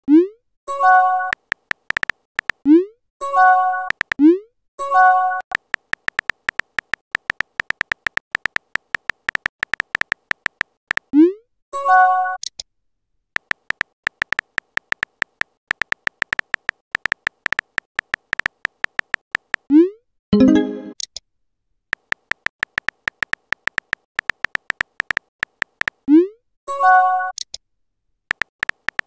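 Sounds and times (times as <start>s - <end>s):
smartphone keyboard tap clicks: 1.3s - 2.6s, 3.9s - 4.2s, 5.5s - 11.1s, 13.4s - 19.7s, 22.0s - 26.0s, 28.3s - 29.0s
chiming message tone: 20.4s - 21.0s.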